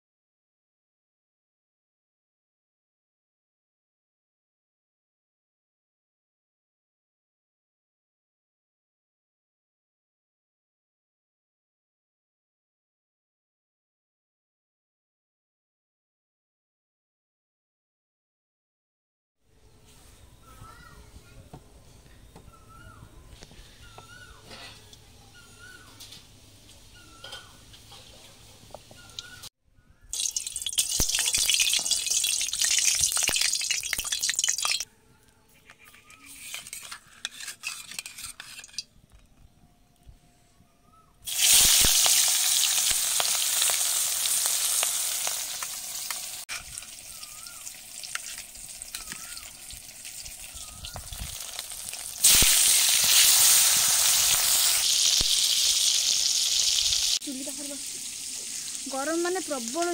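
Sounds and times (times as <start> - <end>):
fish frying in hot oil: 30.1 - 34.8, 41.3 - 59.9.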